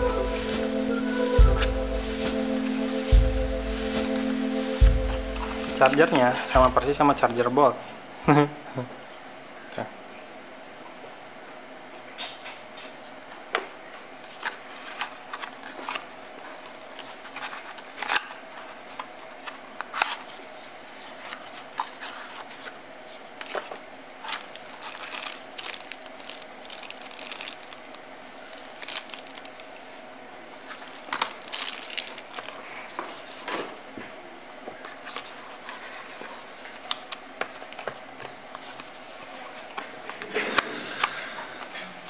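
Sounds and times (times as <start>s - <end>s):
cardboard and paper rustling: 14.3s - 27.8s, 30.6s - 33.8s, 34.7s - 36.9s.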